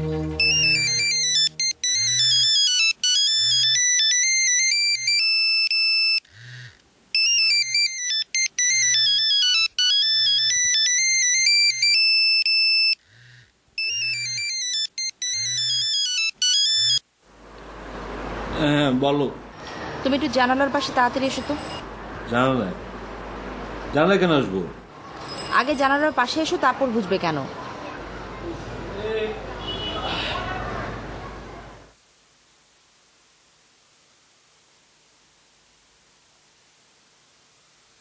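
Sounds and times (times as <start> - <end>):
phone ringtone beeps: 0.4 - 6.3, 7.1 - 13.0, 13.8 - 17.0.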